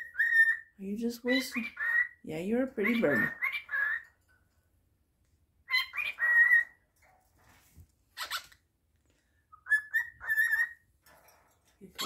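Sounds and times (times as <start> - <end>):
cockatiel whistling: 9.5 - 10.8.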